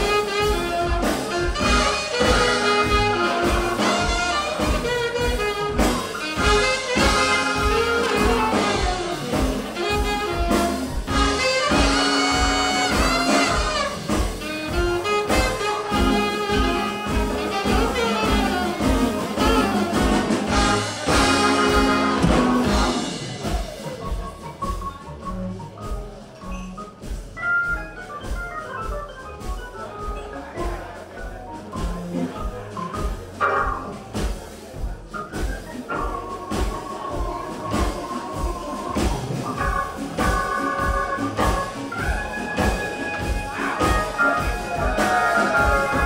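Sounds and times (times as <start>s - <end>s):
trumpet and saxophone horns: 0.0s - 23.5s, 36.0s - 46.0s
double bass pulse: 0.0s - 46.0s
jazz band playing: 0.0s - 46.0s.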